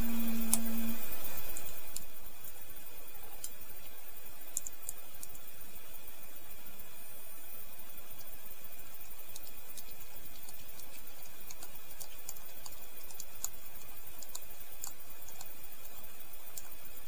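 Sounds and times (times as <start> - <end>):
background hiss: 0.0 - 17.0.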